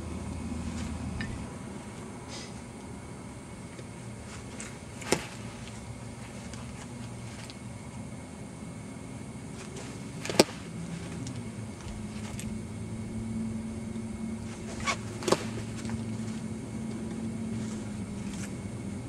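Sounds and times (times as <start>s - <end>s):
steady low hum: 0.0s - 19.0s
baseballs smacking catcher's mitt: 10.2s - 10.8s, 15.2s - 16.0s.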